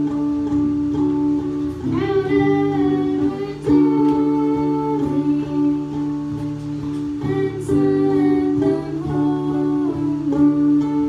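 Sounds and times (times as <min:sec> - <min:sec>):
acoustic guitar chords: 0:00.0 - 0:11.0
boy singing: 0:01.8 - 0:06.6, 0:07.2 - 0:11.0.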